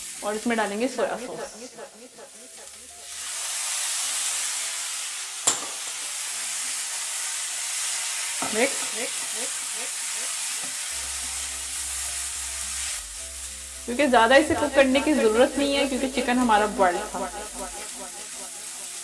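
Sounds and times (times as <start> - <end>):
food sizzling in a pan: 0.0 - 19.0.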